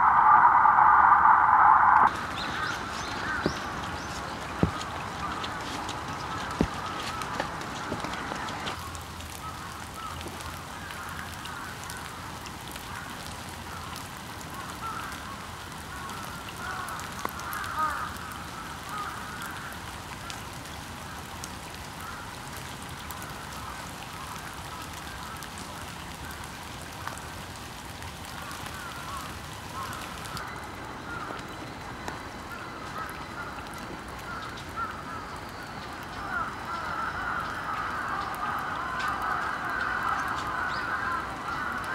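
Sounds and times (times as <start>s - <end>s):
faint hiss: 0.0s - 6.6s
ducks calling: 0.0s - 8.8s.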